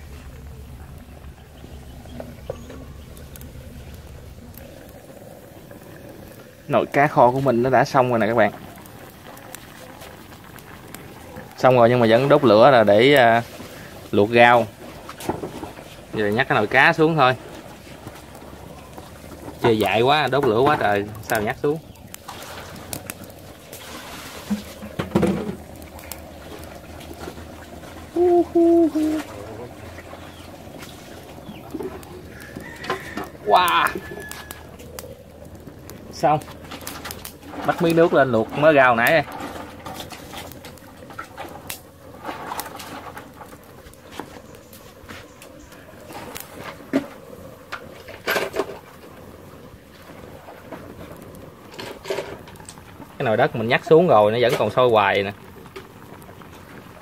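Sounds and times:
pot bubbling: 0.0s - 57.0s
wood fire crackling: 0.0s - 57.0s
dove cooing: 28.1s - 30.5s.

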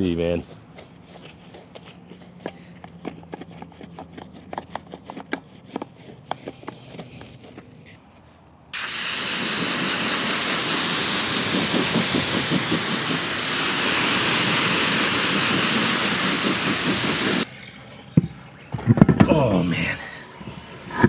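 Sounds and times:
water spray hissing on tire: 8.8s - 17.5s.

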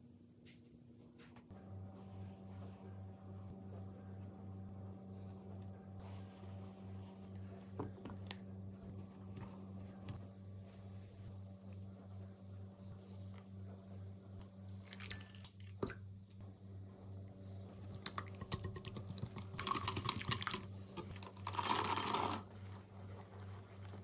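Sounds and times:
steady low hum: 0.0s - 21.4s
dried berries poured into bowl: 21.1s - 22.5s.

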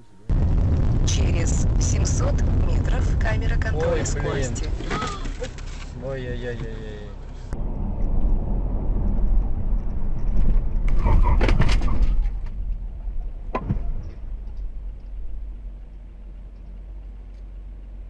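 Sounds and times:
vehicle rumbling: 0.0s - 18.0s
sharp knocks and bangs: 13.4s - 15.3s.

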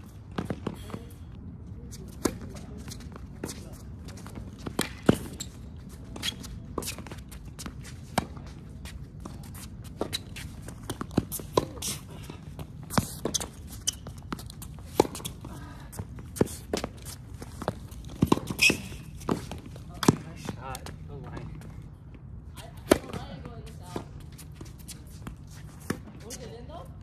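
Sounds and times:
footsteps on court: 1.8s - 22.2s
tennis ball bouncing: 4.3s - 5.5s, 6.2s - 20.9s, 22.6s - 24.1s.

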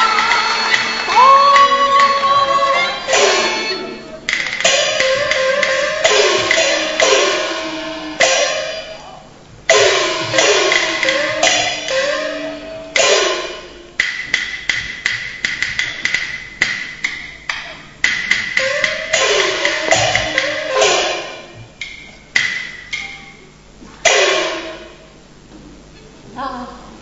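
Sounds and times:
clapper and drum strokes: 0.0s - 8.9s, 9.7s - 23.4s, 24.0s - 25.1s
cymbal shimmer: 0.0s - 14.0s
gongs ringing: 0.0s - 25.4s.

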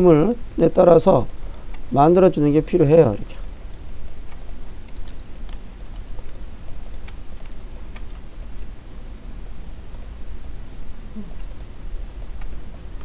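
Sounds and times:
low electrical hum: 0.0s - 13.0s
computer mouse clicks: 1.2s - 1.9s, 3.3s - 13.0s.

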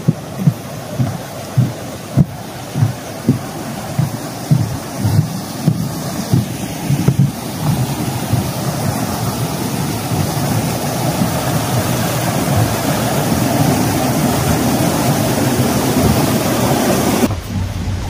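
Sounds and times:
loud steady rushing noise: 0.0s - 18.0s.

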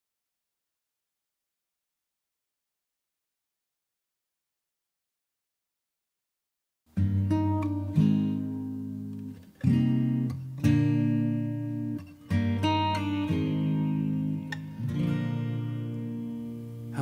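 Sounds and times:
acoustic guitar strumming chords: 6.9s - 17.0s.

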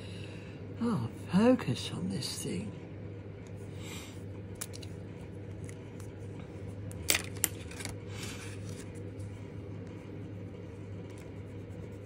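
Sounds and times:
steady low hum: 0.0s - 12.0s
card rustling over paper: 7.1s - 9.5s.

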